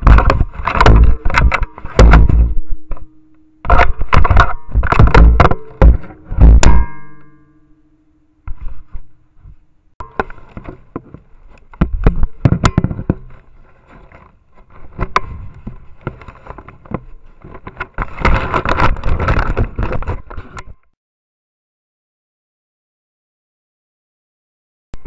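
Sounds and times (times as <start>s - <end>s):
bear knocking and scraping camera: 0.0s - 3.0s, 3.7s - 6.8s, 10.0s - 20.8s.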